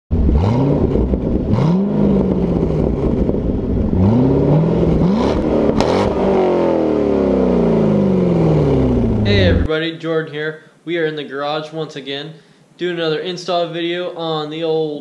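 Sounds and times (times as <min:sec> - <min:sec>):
car engine revving: 0:00.1 - 0:09.7.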